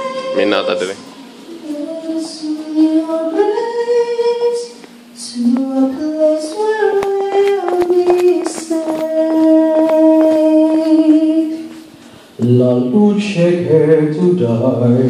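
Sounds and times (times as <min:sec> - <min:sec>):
woman singing slow melody: 0:00.0 - 0:00.4, 0:01.5 - 0:11.9.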